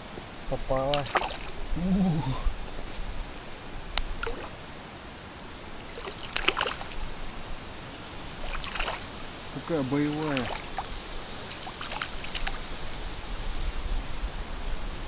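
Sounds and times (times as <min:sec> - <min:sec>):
fish splashing at surface: 0:00.7 - 0:01.6, 0:04.0 - 0:04.6, 0:05.9 - 0:07.2, 0:08.3 - 0:09.3, 0:10.0 - 0:12.6.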